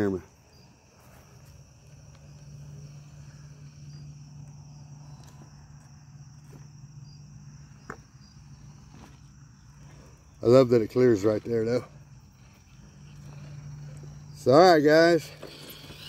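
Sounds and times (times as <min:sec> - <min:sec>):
crickets chirping: 0:00.0 - 0:16.0
toy car electric motor humming: 0:10.9 - 0:16.0.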